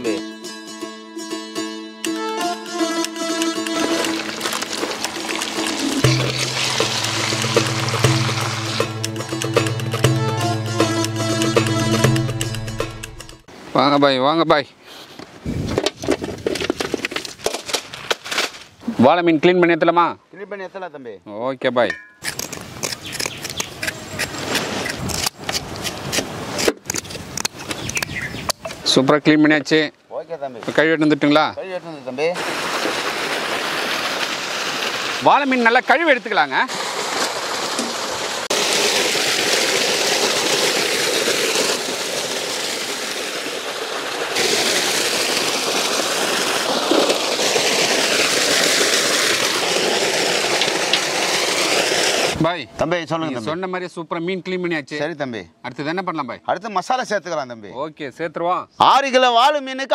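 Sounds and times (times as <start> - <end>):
stream trickling over rocks: 3.1 - 10.3, 32.0 - 52.4
water pouring into metal pot: 3.4 - 9.4, 38.5 - 52.4
fish being scraped and handled: 22.2 - 28.0
scissors snipping: 22.2 - 28.0.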